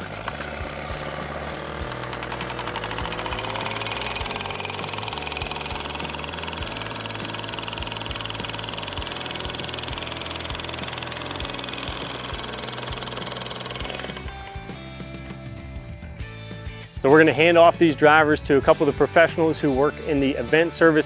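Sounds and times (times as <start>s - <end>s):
hammer pounding wooden stake: 0.0s - 14.3s
small gas engine revving: 0.0s - 14.4s.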